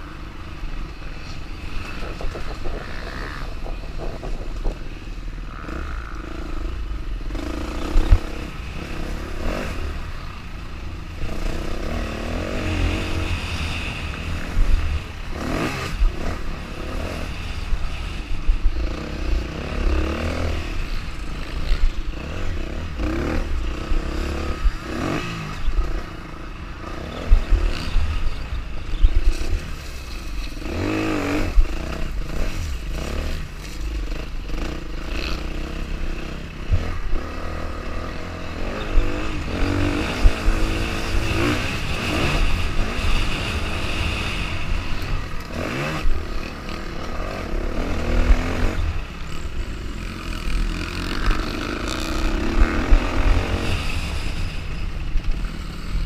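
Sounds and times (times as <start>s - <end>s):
dirt bike engine revving: 1.5s - 56.0s
knocks and clatter from bumps: 1.7s - 5.0s.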